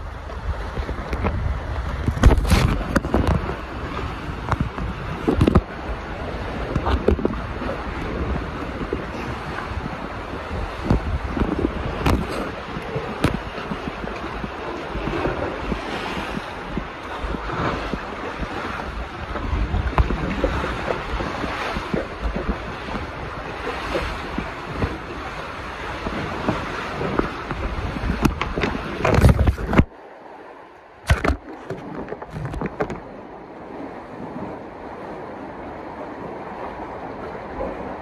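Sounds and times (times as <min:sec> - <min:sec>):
microphone handling rumble: 0:00.0 - 0:30.0, 0:31.0 - 0:33.2
small thumps: 0:31.1 - 0:33.0.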